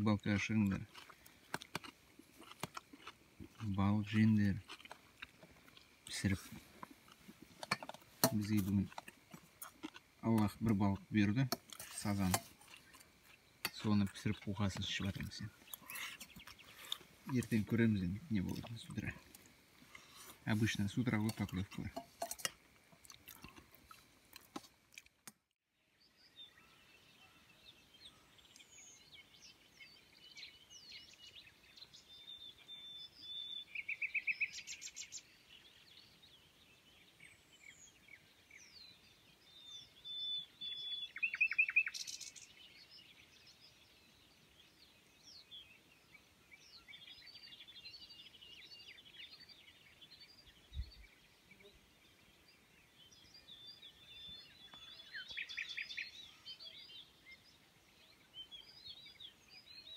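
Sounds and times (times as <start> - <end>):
birds chirping and whistling: 12.0 - 19.2, 26.1 - 51.3, 52.0 - 59.9
loud rapid bird trill: 39.7 - 42.5.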